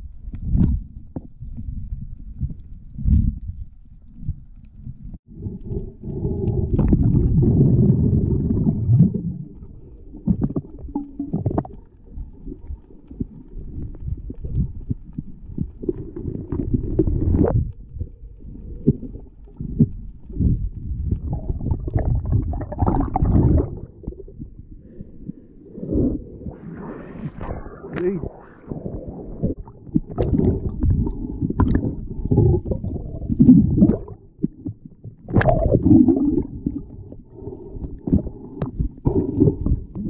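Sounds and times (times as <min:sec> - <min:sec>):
muffled underwater rumbling and knocking: 0:00.0 - 0:40.0
water splashing: 0:21.1 - 0:24.4.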